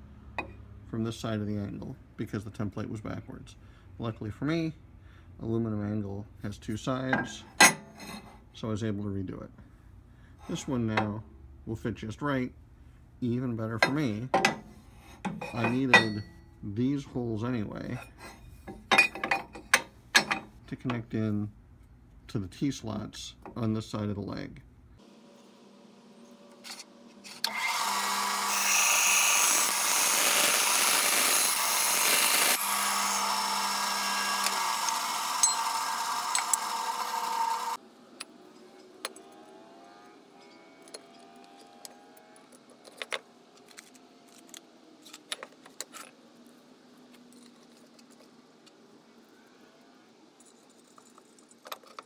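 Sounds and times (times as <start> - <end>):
clicks and scrapes of metal parts: 7.0 - 8.4, 13.8 - 16.4, 17.8 - 21.0, 40.4 - 48.8, 50.4 - 52.0
band saw cutting metal: 26.7 - 37.8.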